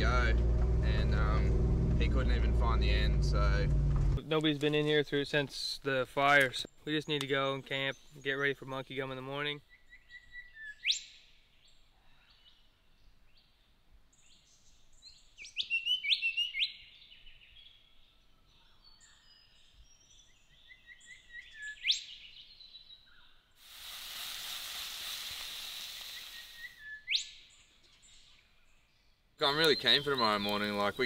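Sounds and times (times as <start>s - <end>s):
birds whistling calls: 9.7s - 11.3s, 15.1s - 17.9s, 18.7s - 23.4s, 25.6s - 28.4s, 29.4s - 31.0s
sausages sizzling in frying pan: 23.6s - 26.7s.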